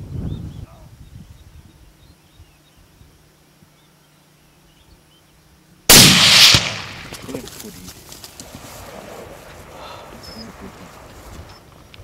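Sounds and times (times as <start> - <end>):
rifle shot: 5.9 - 7.4.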